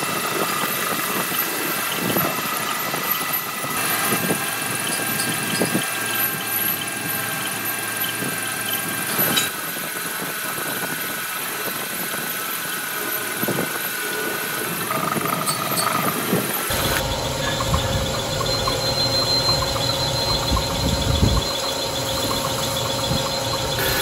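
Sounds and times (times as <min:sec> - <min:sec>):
lathe drone: 0:00.0 - 0:24.0
high cutting tone: 0:15.1 - 0:24.0.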